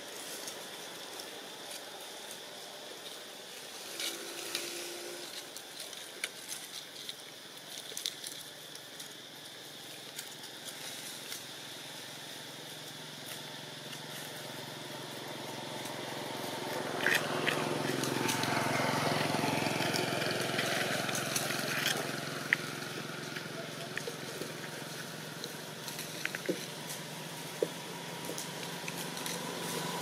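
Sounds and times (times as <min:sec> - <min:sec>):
steady hiss: 0:00.0 - 0:30.0
small clicks and crackles: 0:04.0 - 0:11.5, 0:15.8 - 0:30.0
low engine hum: 0:11.6 - 0:30.0.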